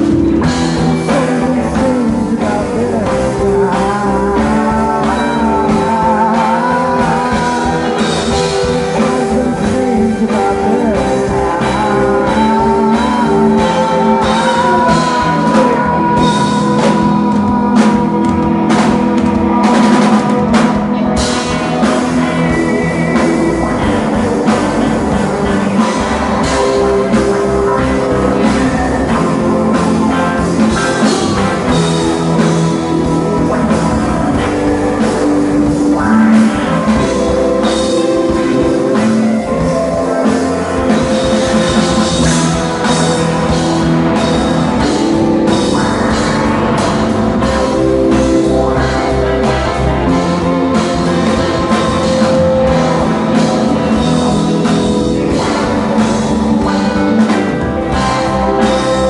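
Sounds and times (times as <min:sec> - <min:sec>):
rock band playing: 0:00.0 - 0:59.0
drum hits: 0:12.3 - 0:59.0.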